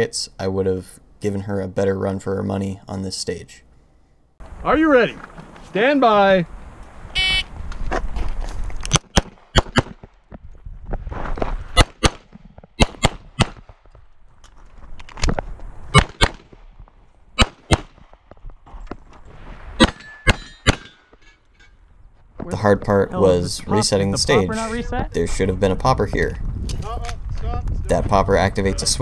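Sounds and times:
pistol shots in pairs: 8.9s - 10.0s, 11.8s - 13.8s, 16.0s - 16.6s, 17.4s - 18.1s.

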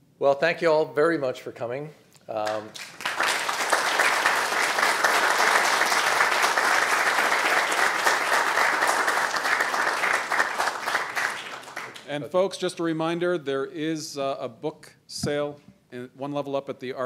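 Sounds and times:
audience applauding: 2.4s - 12.1s.

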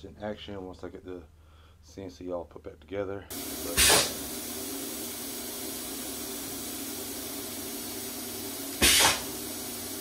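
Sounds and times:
steady hiss: 3.3s - 10.0s.

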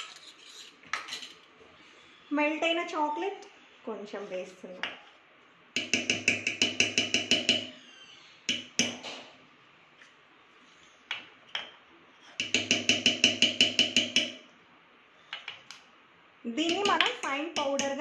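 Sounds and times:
metal spoon tapping steel bowl: 5.8s - 7.7s, 12.4s - 14.4s, 16.6s - 18.0s.

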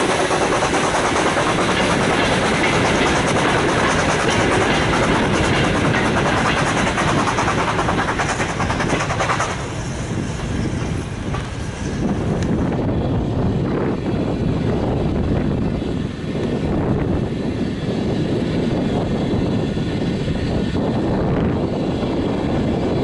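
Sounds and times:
wheels clicking over rail joints: 0.0s - 9.8s.

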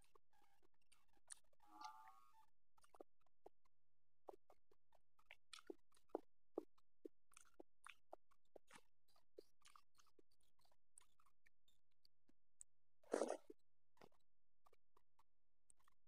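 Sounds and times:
wet chewing clicks and smacks: 0.0s - 1.6s, 4.2s - 11.8s, 13.1s - 16.0s.

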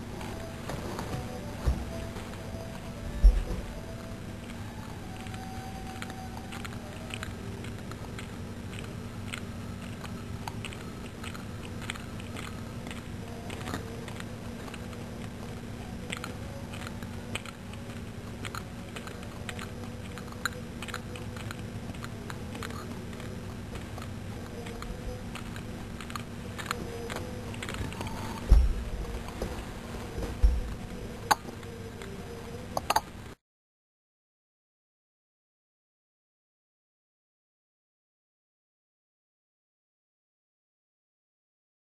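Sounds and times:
steady low hum: 0.0s - 33.4s
cat lapping milk: 6.0s - 32.2s.

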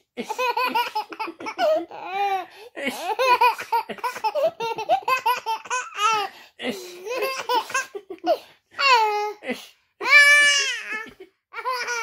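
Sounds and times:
baby giggling: 3.0s - 6.3s, 6.9s - 8.4s, 10.6s - 12.0s.

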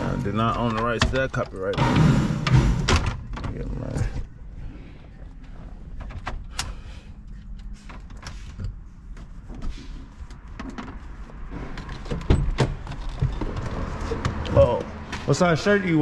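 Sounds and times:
sharp clicks and knocks: 0.5s - 3.7s.

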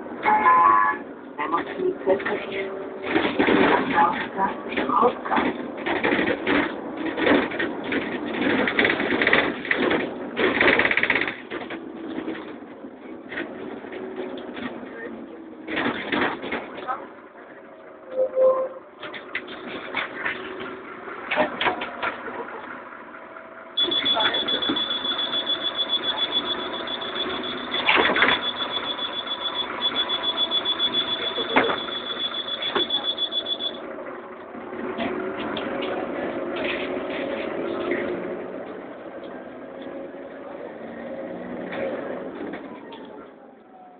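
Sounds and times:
bus engine hum: 0.0s - 43.9s
rapid mechanical rattling: 5.4s - 12.4s.

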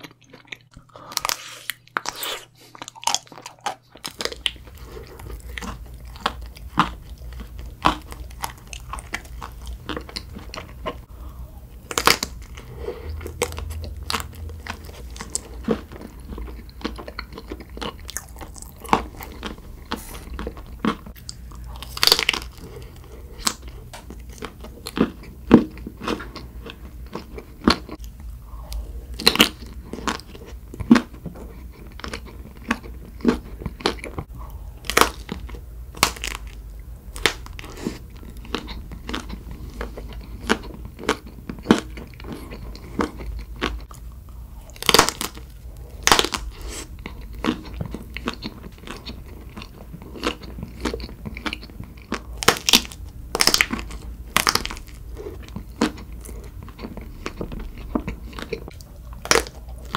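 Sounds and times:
crisp crunches of biting: 0.0s - 11.0s, 11.8s - 25.1s, 34.8s - 44.0s, 44.7s - 59.9s
wet chewing: 0.0s - 11.1s, 11.7s - 59.9s
faint low hum: 0.0s - 59.9s.

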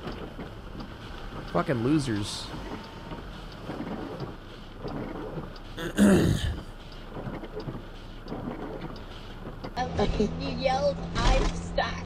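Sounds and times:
short loud vocal sound: 5.8s - 6.6s.

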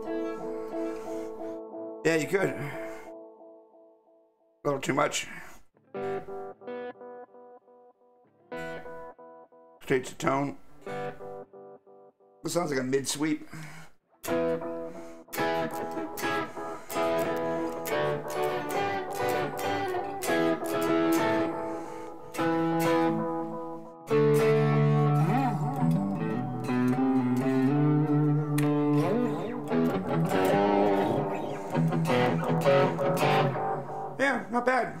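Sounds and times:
electric guitar with delay: 0.0s - 3.4s, 5.9s - 7.6s, 14.2s - 35.0s.

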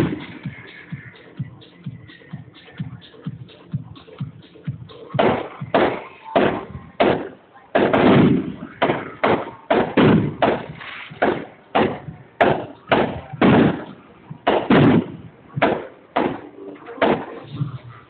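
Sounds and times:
fireworks bangs: 0.0s - 0.6s, 5.1s - 17.8s.

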